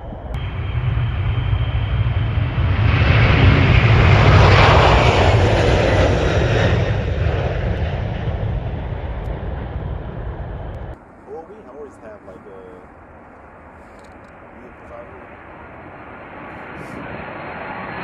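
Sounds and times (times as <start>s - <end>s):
jet engines at takeoff: 0.0s - 18.0s.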